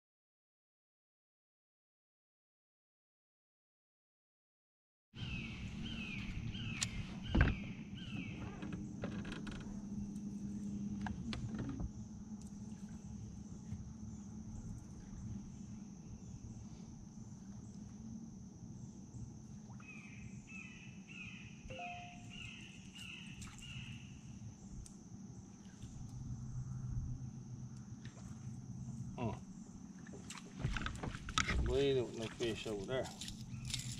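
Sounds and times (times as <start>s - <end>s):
low hum: 5.2s - 33.9s
high-pitched insect drone: 11.5s - 29.9s, 31.8s - 33.9s.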